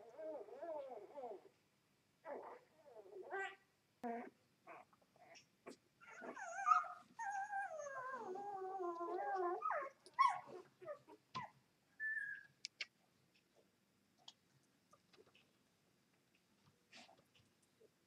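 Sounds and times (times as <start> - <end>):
puppies whimpering and crying: 6.0 - 12.5.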